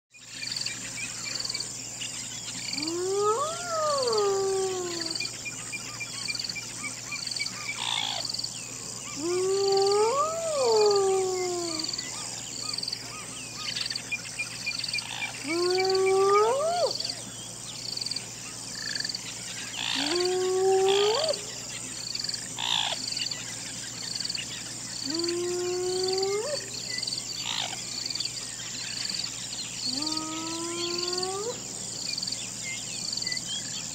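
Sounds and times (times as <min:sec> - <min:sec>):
hyena whooping: 0:02.8 - 0:05.3, 0:09.1 - 0:12.2, 0:15.4 - 0:17.2, 0:19.8 - 0:21.6, 0:25.0 - 0:26.8, 0:29.9 - 0:31.6.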